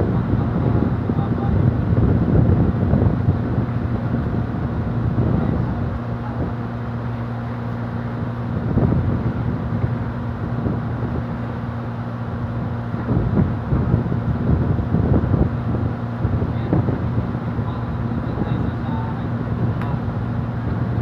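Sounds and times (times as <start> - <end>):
ferry diesel engines humming: 0.0 - 21.0
wind and water rushing: 0.0 - 21.0.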